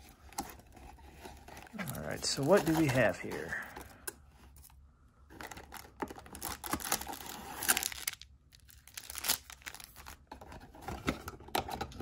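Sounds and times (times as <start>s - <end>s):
foil wrappers crinkling: 0.0s - 3.7s, 5.4s - 10.3s
cardboard rustling: 0.0s - 4.7s.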